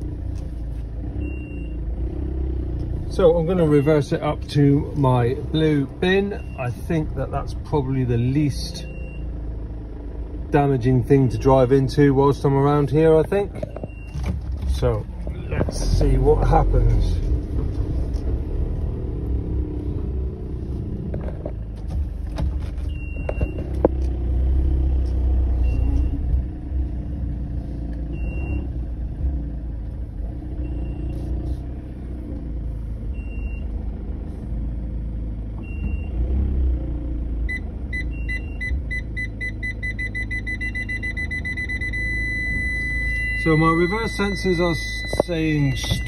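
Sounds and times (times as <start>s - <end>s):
van engine running: 0.0s - 46.0s
parking sensor beeping: 1.2s - 1.8s, 5.5s - 6.9s, 8.7s - 9.3s, 13.3s - 16.0s, 22.8s - 23.9s, 25.4s - 26.4s, 28.1s - 28.9s, 30.6s - 31.3s, 33.1s - 33.8s, 35.6s - 36.2s, 37.5s - 46.0s
reversing beep: 1.2s - 1.8s, 8.7s - 9.3s, 22.9s - 23.7s, 25.6s - 26.3s, 28.1s - 28.7s, 30.6s - 31.2s, 33.2s - 33.7s, 35.6s - 36.2s, 37.5s - 46.0s.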